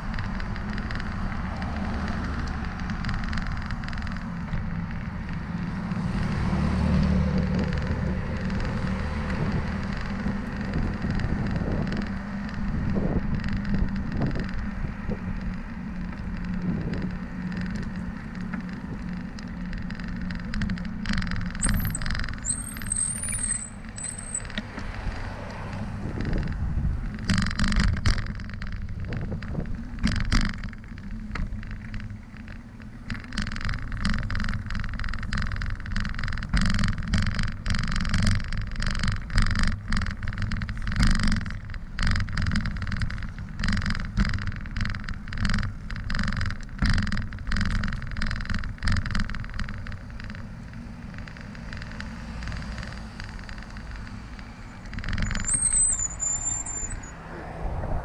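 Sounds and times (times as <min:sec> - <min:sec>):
rattling clicks: 0:00.0 - 0:06.4, 0:07.0 - 0:57.2
bicycle tyres rumbling: 0:00.0 - 0:58.0
high squeak: 0:21.6 - 0:24.5, 0:55.2 - 0:57.2.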